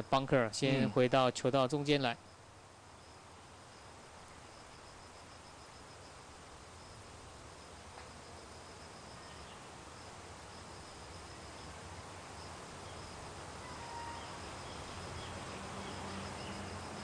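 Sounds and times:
steady hiss: 0:00.0 - 0:17.0
insect trilling: 0:07.6 - 0:17.0.

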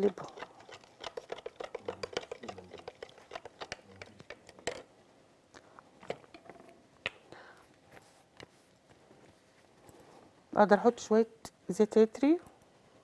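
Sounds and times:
spoon clicking in plastic cup: 0:01.0 - 0:04.9.

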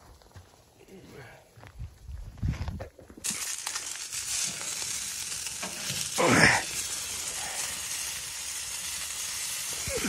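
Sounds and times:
meat sizzling on grill: 0:03.2 - 0:10.0.

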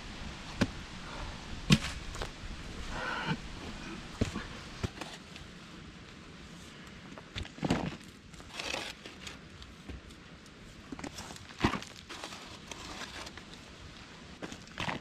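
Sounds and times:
shovel scraping into clay: 0:07.7 - 0:09.3.

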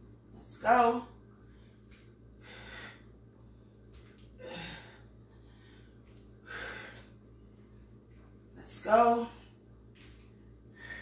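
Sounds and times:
woman breathing hard: 0:01.4 - 0:03.6, 0:04.4 - 0:07.2, 0:10.6 - 0:11.0.

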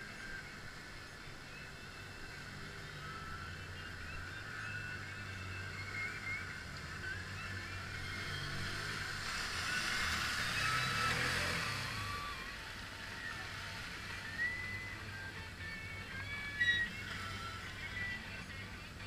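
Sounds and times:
utility vehicle engine revving: 0:00.0 - 0:19.0.

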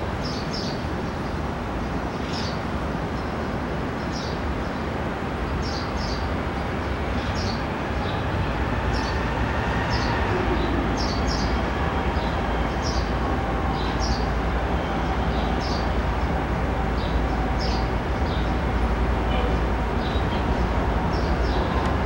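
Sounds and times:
freight train rumbling: 0:00.0 - 0:22.0
birds chirping: 0:04.0 - 0:22.0.

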